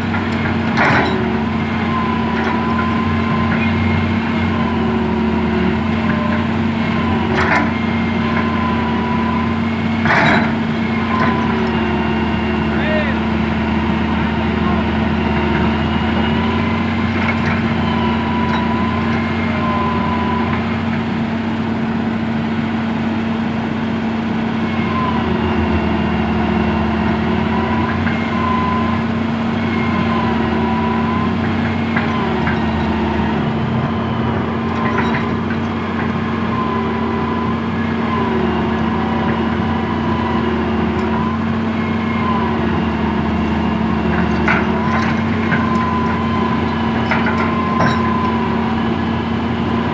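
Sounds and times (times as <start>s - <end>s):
excavator diesel engine running: 0.0s - 49.9s
hydraulic whine wavering: 23.4s - 49.9s.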